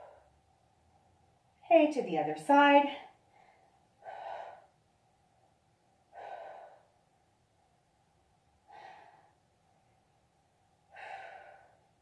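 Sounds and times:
woman breathing faintly: 0.0s - 0.6s, 3.1s - 7.3s, 8.5s - 10.1s, 10.7s - 12.0s.

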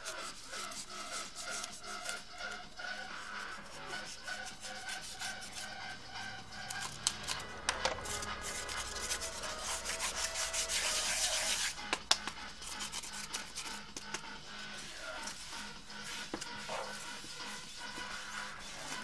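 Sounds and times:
knife scraping foam: 8.2s - 11.8s.

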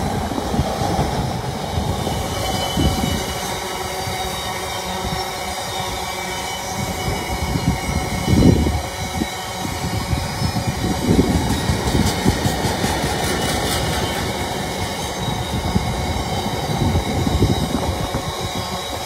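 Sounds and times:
diesel locomotive passing: 0.0s - 19.0s
wagons rumbling over rails: 0.0s - 19.0s.

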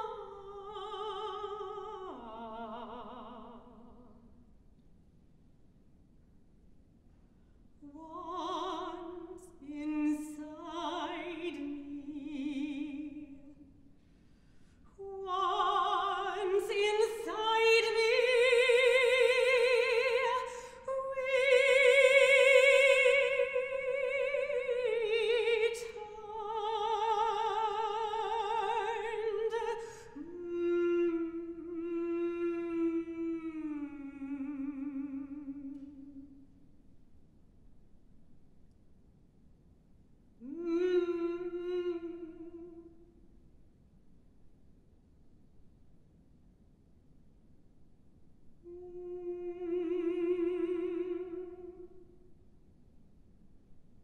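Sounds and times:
woman singing unaccompanied: 0.0s - 4.3s, 7.8s - 13.7s, 15.0s - 36.4s, 40.4s - 43.1s, 48.6s - 52.0s.

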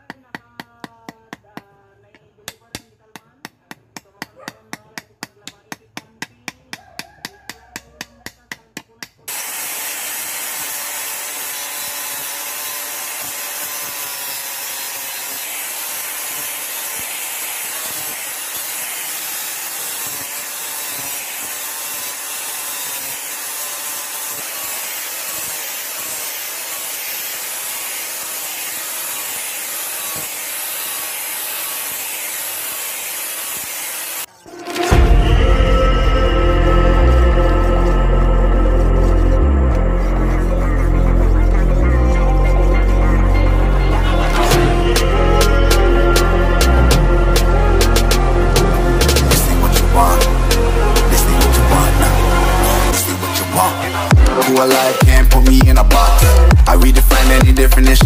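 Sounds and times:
hammer tapping on wood: 0.0s - 9.2s
angle grinder grinding wood: 9.3s - 58.0s.

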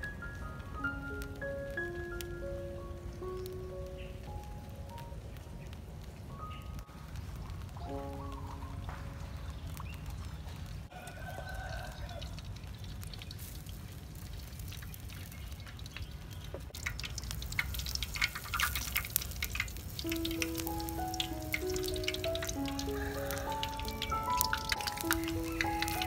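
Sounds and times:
hot oil crackling and sizzling: 3.2s - 26.0s
oil pouring: 16.8s - 26.0s.

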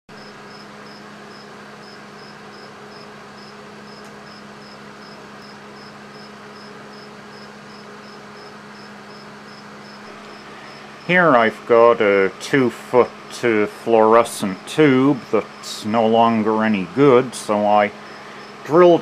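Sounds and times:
cricket chirping: 0.2s - 11.1s, 18.0s - 18.6s.

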